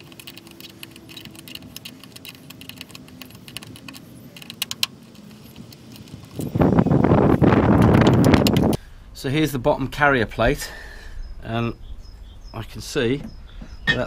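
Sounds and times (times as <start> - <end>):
hex key clicking on bolts: 0.0 - 6.4.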